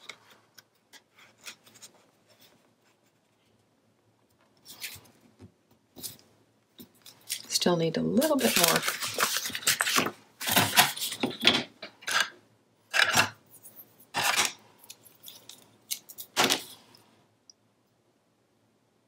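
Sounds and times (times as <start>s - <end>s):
paper sheets shuffling: 4.6s - 5.2s, 8.2s - 12.2s.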